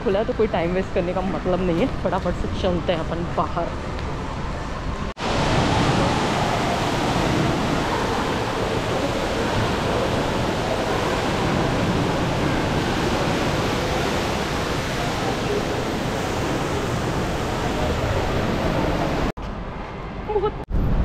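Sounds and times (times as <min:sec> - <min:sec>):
indoor waterfall rushing into pool: 0:05.2 - 0:19.3.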